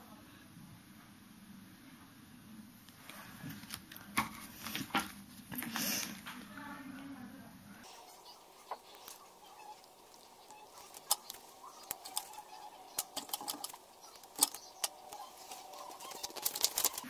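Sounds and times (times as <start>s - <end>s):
paper and plastic rustling: 3.0s - 6.4s, 7.8s - 17.0s.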